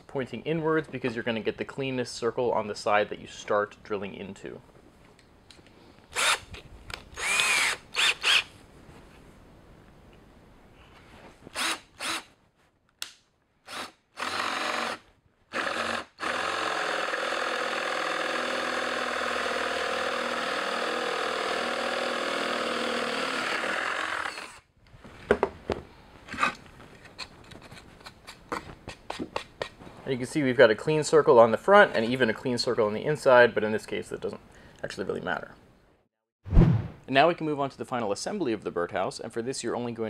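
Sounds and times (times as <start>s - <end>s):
cordless drill boring wood: 6.1s - 6.5s, 7.2s - 8.5s, 11.5s - 12.2s, 13.7s - 24.6s.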